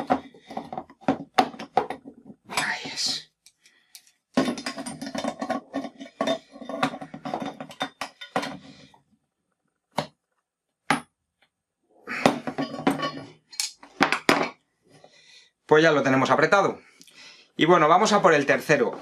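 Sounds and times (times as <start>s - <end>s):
wrench and pliers clinking on metal: 12.6s - 13.8s.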